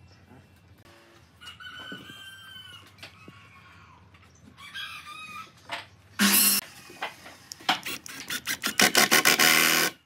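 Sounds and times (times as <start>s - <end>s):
rooster crowing: 1.4s - 4.0s.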